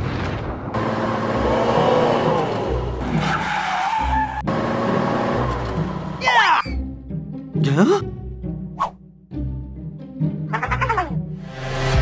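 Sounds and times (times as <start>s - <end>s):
race car running: 0.8s - 6.2s
background music: 1.4s - 12.0s.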